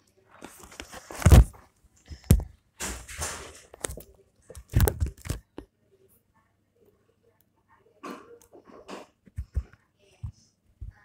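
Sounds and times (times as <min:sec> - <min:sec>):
thumps close to microphone: 0:01.2 - 0:04.0, 0:08.9 - 0:11.0.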